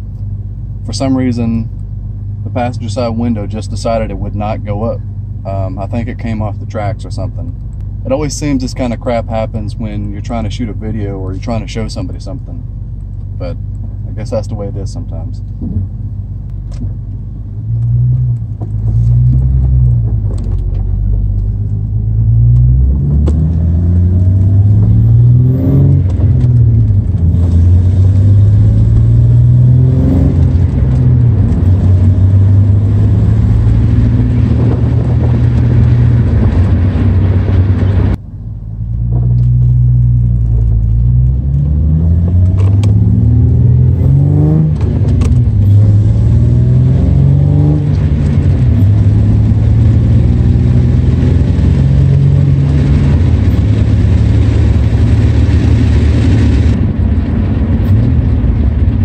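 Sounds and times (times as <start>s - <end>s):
wind and road noise: 0.0s - 59.0s
car engine revving through gears: 16.6s - 38.2s, 38.9s - 56.8s.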